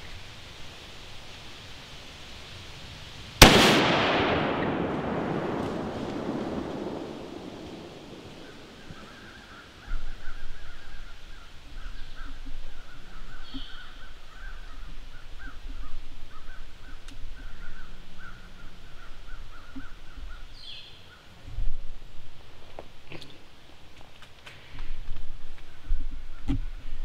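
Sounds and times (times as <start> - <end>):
low microphone rumble: 3.4 - 20.6
higher bird calls: 5.8 - 21.4
birds calling harshly: 7.8 - 21.4.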